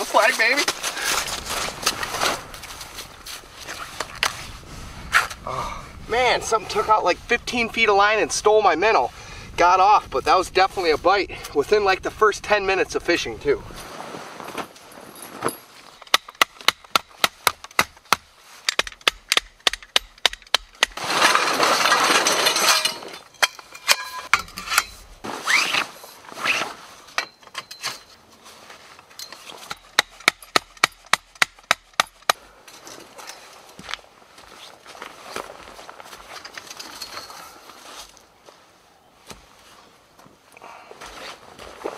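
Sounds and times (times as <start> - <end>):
canvas rustling: 0.0 - 5.3, 13.7 - 16.0, 24.8 - 27.2, 27.9 - 29.7, 32.9 - 40.2
metal tent poles knocking and clicking: 15.4 - 25.1, 27.1 - 28.3, 29.0 - 33.7.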